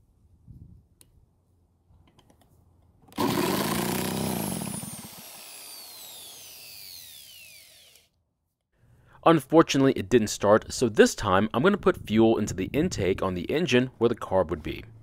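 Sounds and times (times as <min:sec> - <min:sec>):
drill whining: 0:03.1 - 0:08.1.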